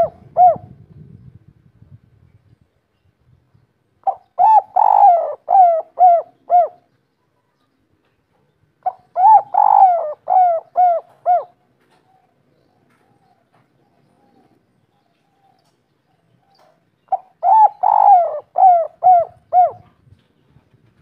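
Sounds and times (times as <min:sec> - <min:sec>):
dove cooing: 0:00.0 - 0:00.9, 0:04.0 - 0:06.9, 0:08.8 - 0:15.8, 0:16.4 - 0:20.0.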